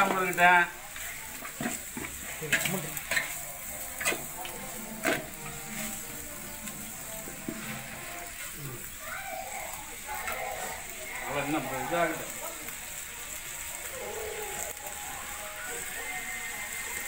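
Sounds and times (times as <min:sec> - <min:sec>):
faint voices: 0:00.0 - 0:17.0
vegetables sizzling in a pot: 0:00.0 - 0:17.0
ladle scraping and knocking pot: 0:01.4 - 0:06.0.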